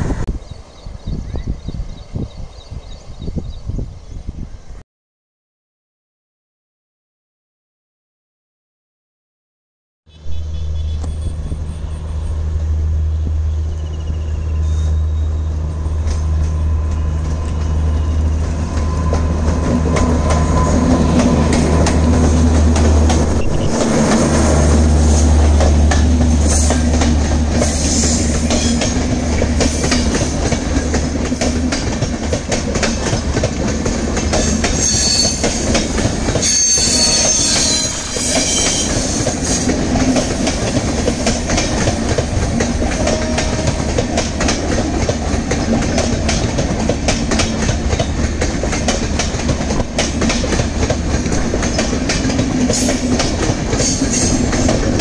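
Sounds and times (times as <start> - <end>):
locomotive rumbling past: 0.0 - 3.7, 10.1 - 55.0
rail clatter: 15.5 - 55.0
high-pitched wheel squeal: 34.4 - 39.6.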